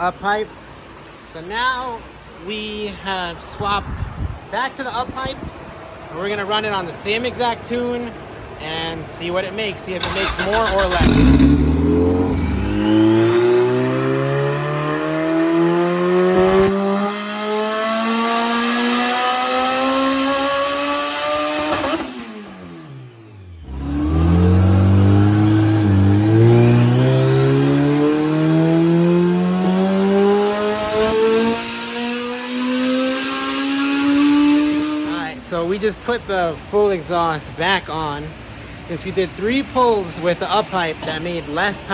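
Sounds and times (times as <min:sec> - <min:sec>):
engine revving at full throttle: 0:10.0 - 0:35.2
turbo whine: 0:11.0 - 0:14.2.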